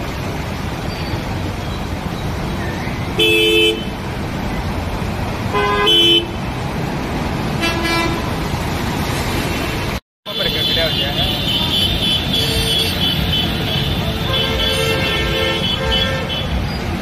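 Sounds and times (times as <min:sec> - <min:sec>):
traffic through floodwater: 0:00.0 - 0:17.0
vehicle horns honking: 0:03.2 - 0:04.0, 0:05.5 - 0:06.4, 0:07.6 - 0:08.4, 0:10.3 - 0:16.8.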